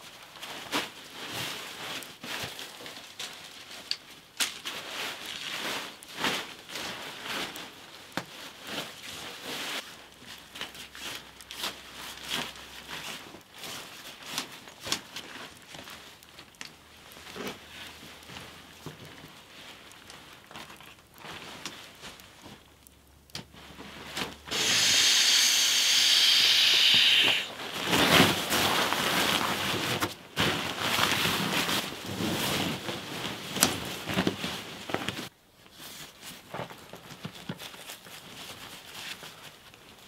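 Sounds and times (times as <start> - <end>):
nylon crinkling and rustling: 0.0 - 24.6, 27.4 - 40.0
air hissing through a valve: 24.5 - 27.5.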